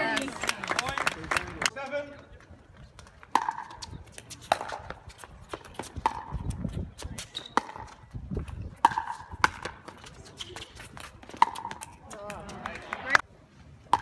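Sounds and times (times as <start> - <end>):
wind rumbling on microphone: 3.7 - 9.8.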